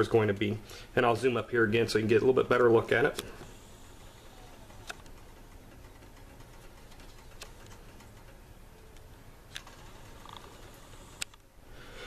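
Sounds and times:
faint room hum: 0.0s - 12.0s
sharp clicks: 4.4s - 11.5s.

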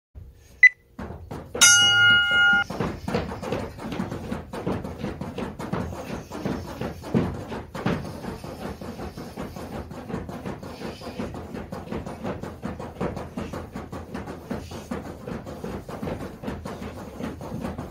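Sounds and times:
battle ropes slapping floor mats: 0.9s - 17.9s
buzzer tone: 1.6s - 2.6s
timer beep: 1.6s - 2.7s.

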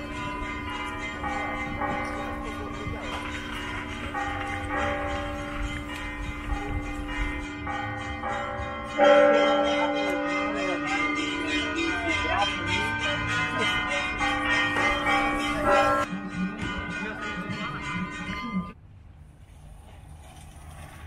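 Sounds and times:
church bells ringing: 0.0s - 18.8s
people's voices: 1.3s - 6.9s, 9.4s - 18.8s.

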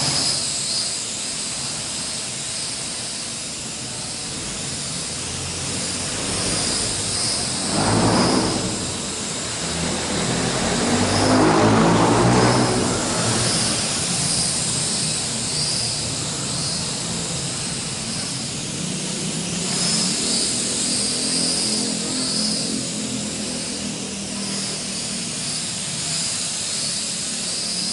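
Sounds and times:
quadcopter motors buzzing: 0.0s - 27.9s.

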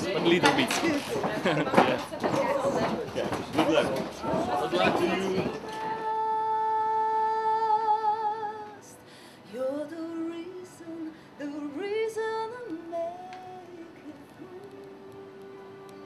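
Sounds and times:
woman singing: 4.8s - 16.0s.

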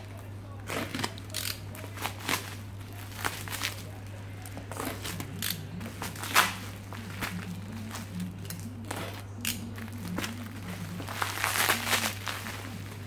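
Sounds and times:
bubble wrap crinkling and crackling: 0.0s - 13.0s
steady low hum: 0.0s - 13.0s.

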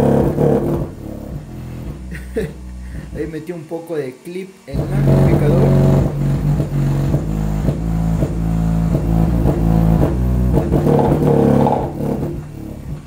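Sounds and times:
subwoofer playing bass-heavy music: 0.0s - 3.4s, 4.7s - 13.0s
voice coil hitting magnet: 4.8s - 13.0s.

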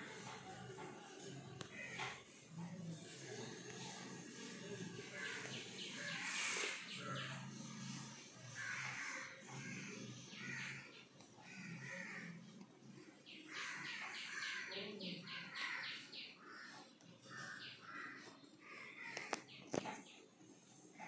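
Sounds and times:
birds calling: 4.6s - 20.3s.

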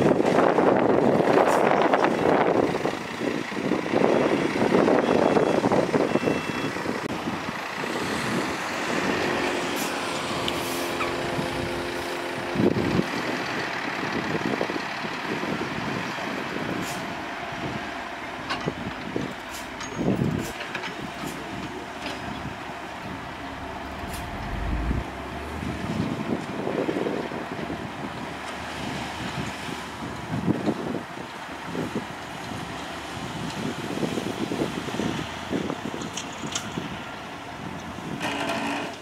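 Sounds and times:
diesel truck engine: 0.0s - 39.0s.

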